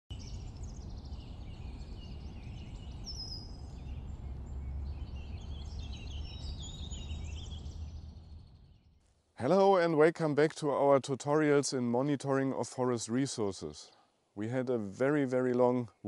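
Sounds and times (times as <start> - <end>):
steady low rumble: 0.1 - 8.9
songbirds singing and chirping: 0.1 - 9.8, 10.6 - 16.0.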